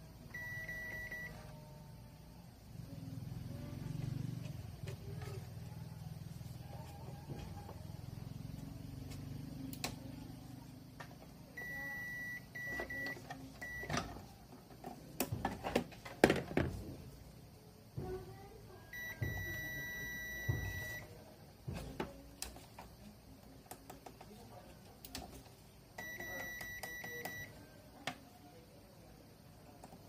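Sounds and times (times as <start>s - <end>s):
multimeter continuity beeps: 0.3s - 1.6s, 11.5s - 14.2s, 18.9s - 21.2s, 26.0s - 27.7s.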